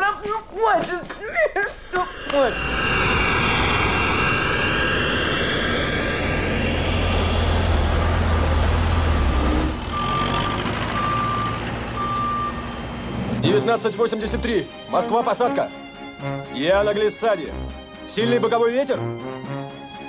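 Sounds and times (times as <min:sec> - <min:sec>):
jet airliner passing: 0:01.5 - 0:09.8
vehicle backup alarm beeping: 0:09.9 - 0:13.4.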